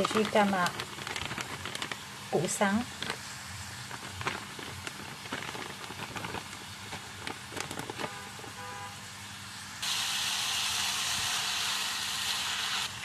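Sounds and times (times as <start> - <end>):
plastic bag crinkling: 0.0 - 8.6
vegetables sizzling in a pan: 1.5 - 7.5, 8.4 - 13.0.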